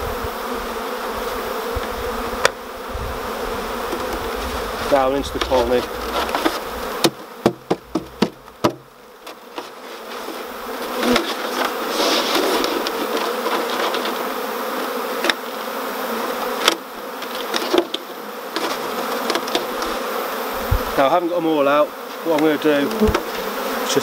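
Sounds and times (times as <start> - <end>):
honeybees buzzing: 0.0 - 24.0
sharp taps on plastic box: 7.0 - 8.9.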